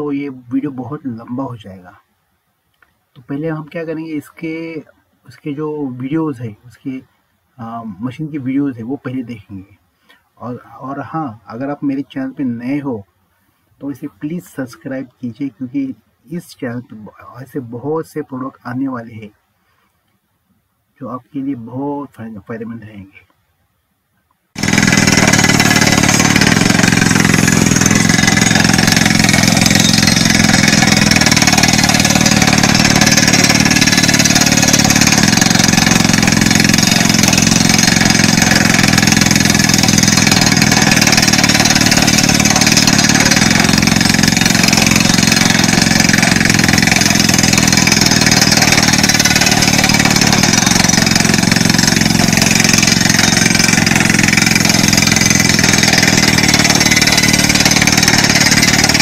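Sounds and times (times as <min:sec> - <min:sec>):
compressed air blowing: 0:24.6 - 0:59.0
rock drill drilling into rock: 0:24.6 - 0:59.0.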